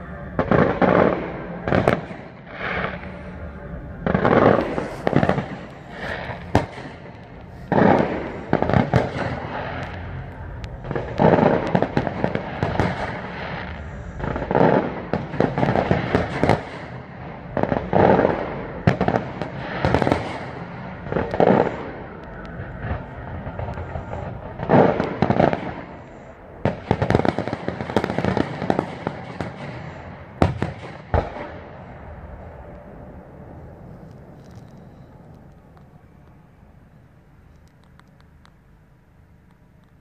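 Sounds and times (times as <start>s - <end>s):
fireworks crackling: 0.0s - 32.8s, 33.6s - 36.5s.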